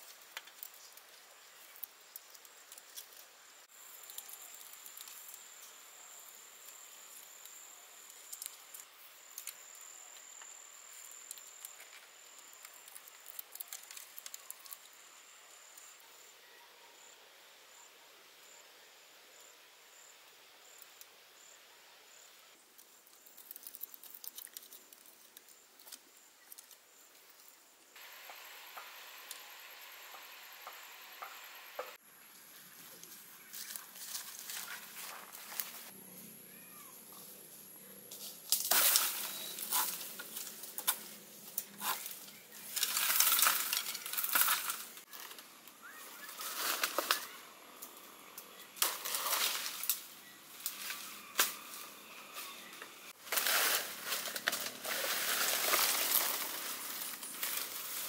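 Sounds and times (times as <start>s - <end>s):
bamboo poles clicking and knocking: 0.0s - 1.1s, 38.1s - 45.5s, 52.8s - 58.0s.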